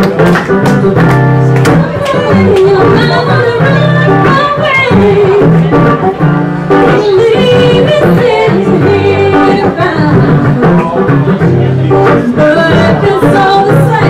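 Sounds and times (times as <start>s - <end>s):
live band with low bass: 0.0s - 14.0s
woman singing: 0.9s - 11.1s, 12.0s - 14.0s.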